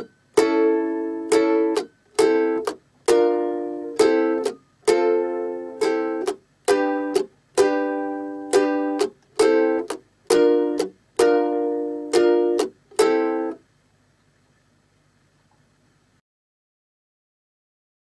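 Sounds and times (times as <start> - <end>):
ukulele strumming: 0.0 - 13.7
faint low hum: 0.0 - 16.2.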